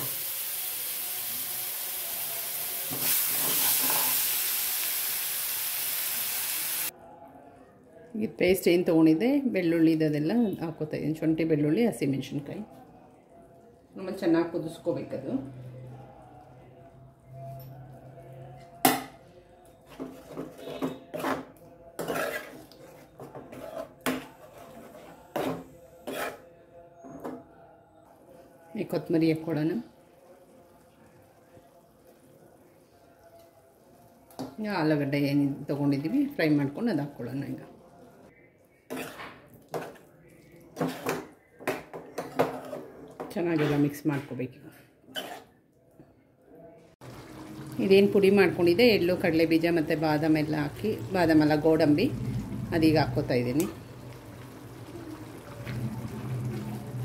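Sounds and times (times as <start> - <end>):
food sizzling in oil: 0.0 - 6.9, 47.0 - 57.0
spoon scraping a metal pan: 3.0 - 4.2, 19.9 - 26.5
spoon stirring in pan: 19.6 - 26.4, 38.7 - 43.9.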